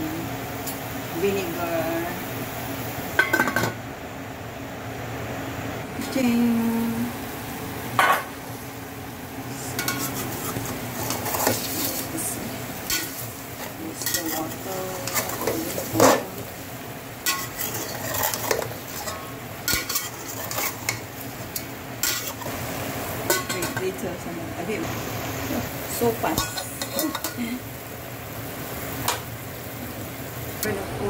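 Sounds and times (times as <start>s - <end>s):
frying sizzle: 0.0s - 31.0s.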